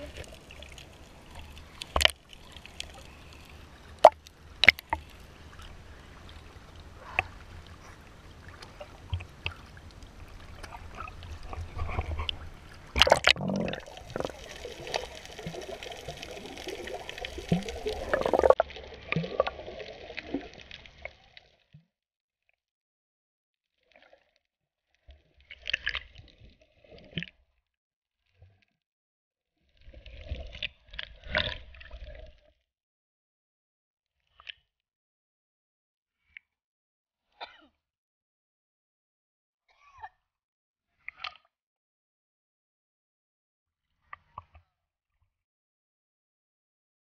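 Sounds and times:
muffled underwater sloshing: 0:00.0 - 0:21.0
water splashing: 0:00.0 - 0:21.1.

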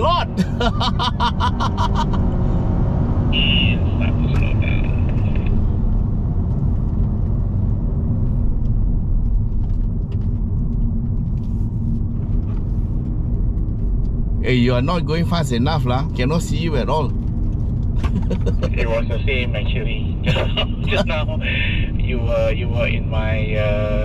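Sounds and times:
man laughing: 0:00.0 - 0:02.4, 0:18.0 - 0:19.1, 0:20.2 - 0:21.9
car engine and road noise: 0:00.0 - 0:24.0.

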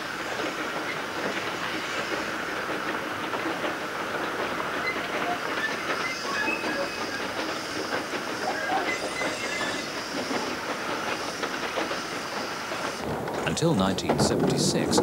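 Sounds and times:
train rattling on track: 0:00.0 - 0:15.0
short high squeaks: 0:04.8 - 0:07.8, 0:08.4 - 0:10.5.

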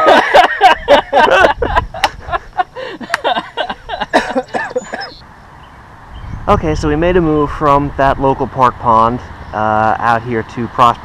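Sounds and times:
indistinct men's voices: 0:00.0 - 0:05.2.

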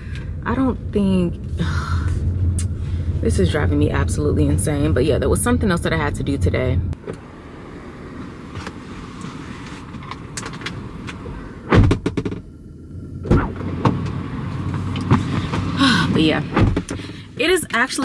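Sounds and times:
car engine and road rumble: 0:00.0 - 0:18.0
sharp thumps: 0:11.6 - 0:12.5, 0:13.2 - 0:15.8, 0:16.4 - 0:17.2.

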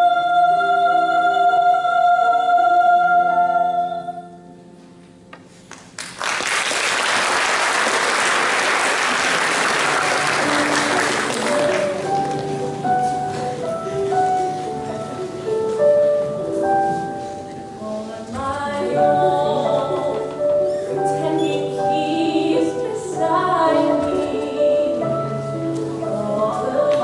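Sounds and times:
audience applauding: 0:05.7 - 0:12.5
instrumental accompaniment: 0:08.9 - 0:27.0.

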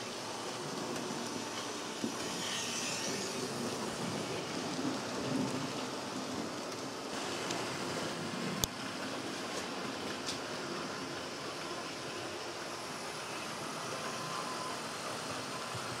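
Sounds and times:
model train wheels rattling on rails: 0:00.0 - 0:07.6.

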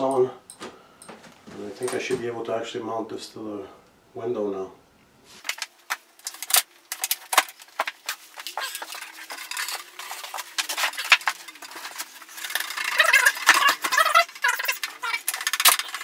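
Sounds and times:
handling clicks and knocks: 0:00.0 - 0:02.3
faint steady hum: 0:00.0 - 0:16.0.

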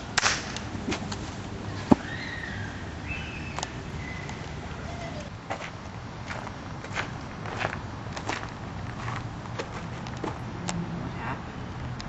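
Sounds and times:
outdoor background noise: 0:00.0 - 0:12.0
short chirping calls: 0:02.1 - 0:05.3.

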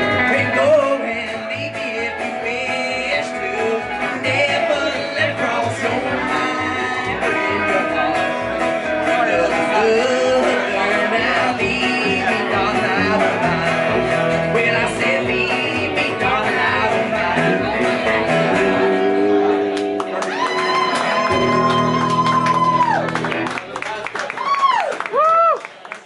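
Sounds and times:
plucked upright bass: 0:00.0 - 0:20.4
acoustic guitar: 0:00.0 - 0:23.8
electric guitar: 0:00.0 - 0:23.8.

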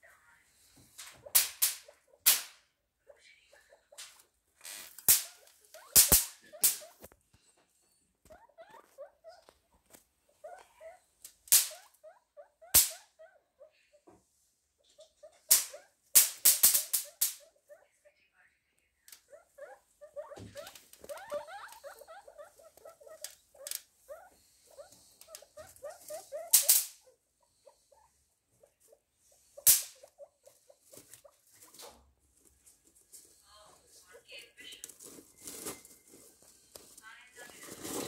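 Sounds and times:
guinea pigs squeaking: 0:00.0 - 0:07.2, 0:07.8 - 0:14.1, 0:14.8 - 0:38.0
straw and cardboard crackling: 0:34.6 - 0:38.0.

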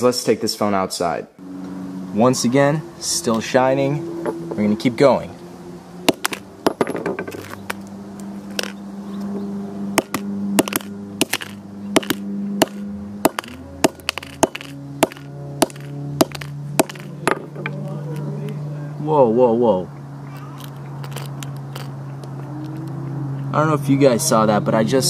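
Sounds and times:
hammer striking phone on pavement: 0:06.1 - 0:07.8, 0:08.5 - 0:08.8, 0:10.0 - 0:17.7.

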